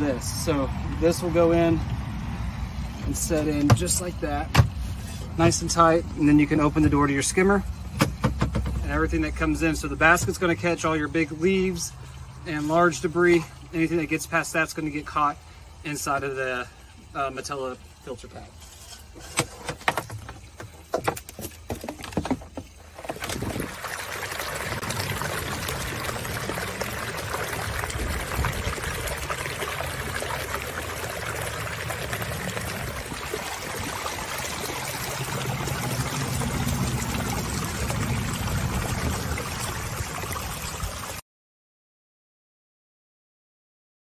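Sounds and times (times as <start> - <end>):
sharp clicks and knocks: 7.9 - 8.8, 19.2 - 23.4
water splashing down waterfall: 22.7 - 41.2.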